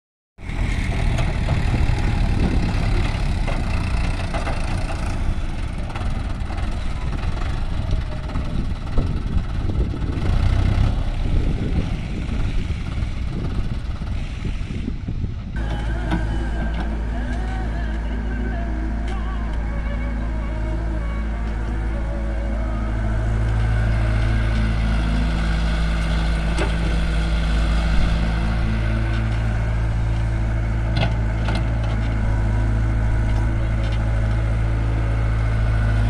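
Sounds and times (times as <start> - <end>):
excavator digging soil: 0.4 - 8.7, 15.6 - 19.5, 21.3 - 36.0
diesel tractor engine: 0.4 - 36.0
steady engine drone: 0.4 - 36.0.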